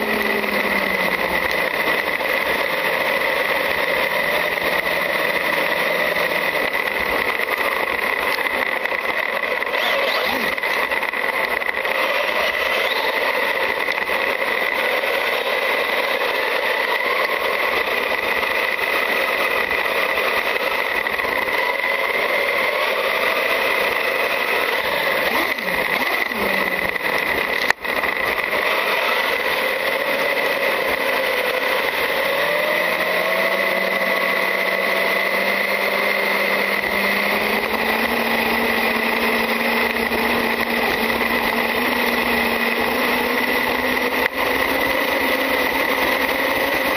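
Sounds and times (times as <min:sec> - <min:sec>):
constant high tone: 0:09.2 - 0:14.0.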